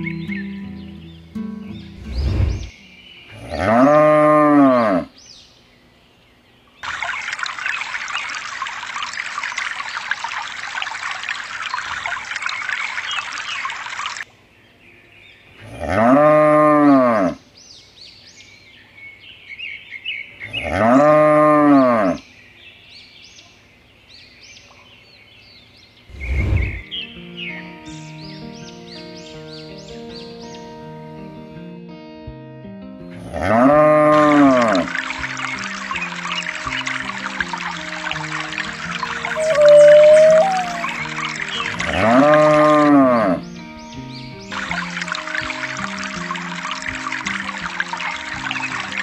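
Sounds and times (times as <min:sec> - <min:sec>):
cow mooing: 0:03.4 - 0:05.1, 0:15.7 - 0:17.4, 0:20.6 - 0:22.2, 0:33.2 - 0:34.9, 0:39.3 - 0:41.0, 0:41.8 - 0:43.4
water pouring: 0:06.8 - 0:14.3, 0:34.1 - 0:43.0, 0:44.5 - 0:49.0
faint bird chirps: 0:39.0 - 0:41.8.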